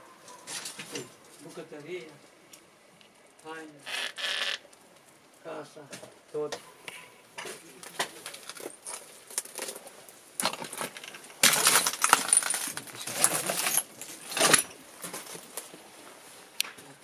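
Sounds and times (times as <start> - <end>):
footsteps crunching over rubble: 7.3 - 16.2.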